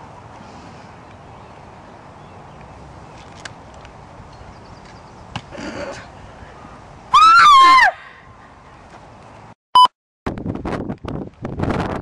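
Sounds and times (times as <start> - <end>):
shrill scream falling in pitch: 7.1 - 8.0.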